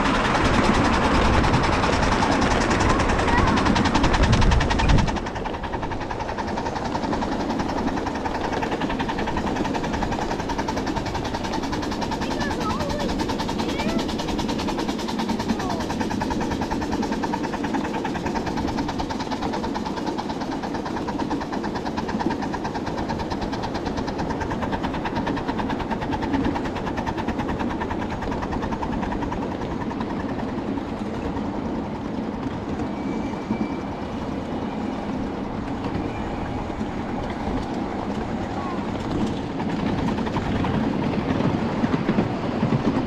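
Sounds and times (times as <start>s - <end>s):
steam locomotive running: 0.0s - 43.0s.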